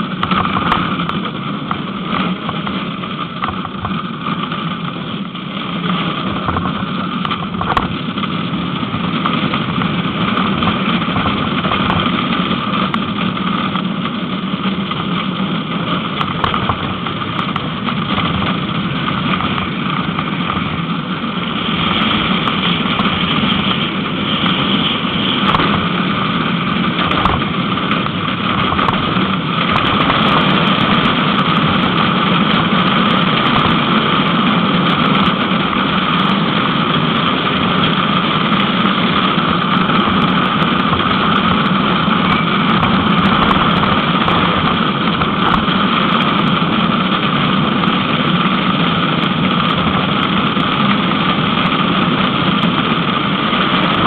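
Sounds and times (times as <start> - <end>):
rushing wind: 0.0 - 54.0
wheels rumbling and rattling on road: 0.0 - 54.0.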